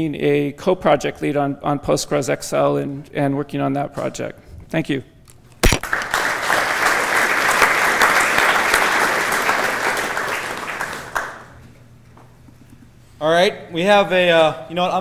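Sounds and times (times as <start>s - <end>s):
audience applauding: 5.7s - 11.6s.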